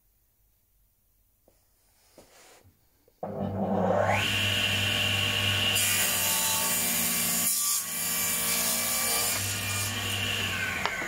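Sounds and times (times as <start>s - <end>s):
table saw motor hum: 3.2s - 7.2s, 9.1s - 11.0s
saw cutting plywood: 3.2s - 11.0s.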